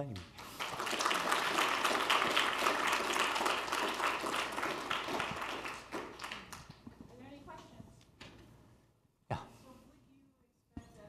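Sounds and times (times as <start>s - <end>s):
audience applauding: 0.3s - 6.9s.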